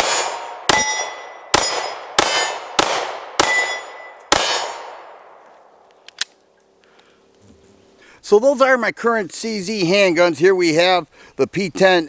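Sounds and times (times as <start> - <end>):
steel plate target ringing: 0.0 - 2.7, 3.4 - 4.8
pistol shots: 0.0 - 5.3.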